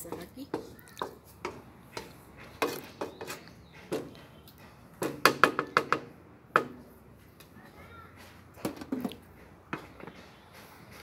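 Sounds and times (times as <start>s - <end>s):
wooden spatula scraping frying pan: 0.0s - 3.6s.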